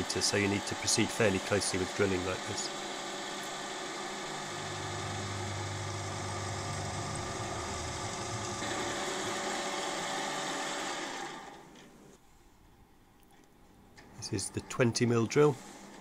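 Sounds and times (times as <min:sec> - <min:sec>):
milling machine drilling steel: 0:04.4 - 0:09.6.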